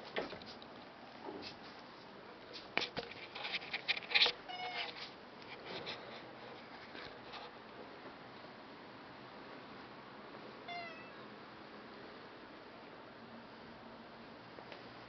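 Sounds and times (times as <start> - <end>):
cat meowing: 10.7 - 11.3.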